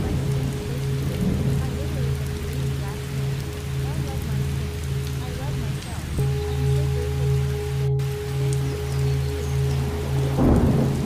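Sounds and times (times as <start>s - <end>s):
low drone tones: 0.0s - 11.0s
rain: 0.0s - 11.0s.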